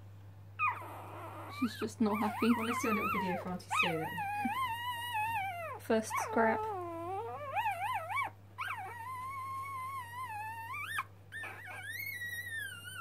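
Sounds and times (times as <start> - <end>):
puppy crying: 0.6 - 13.0.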